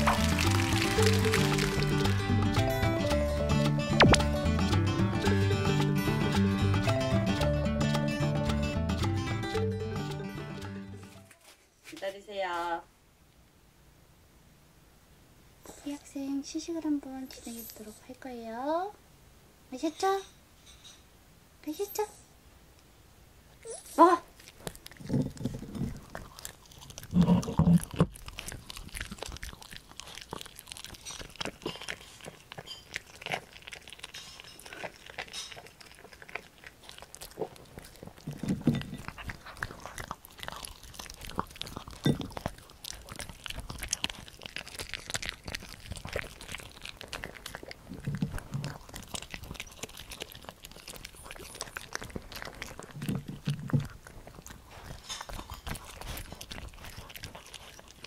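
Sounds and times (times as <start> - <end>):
dog chewing and crunching: 0.0 - 8.2, 23.5 - 58.0.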